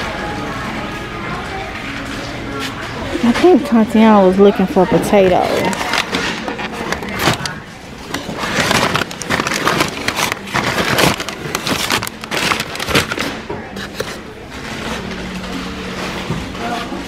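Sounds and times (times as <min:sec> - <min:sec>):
paper bags crinkling: 0:04.8 - 0:14.2.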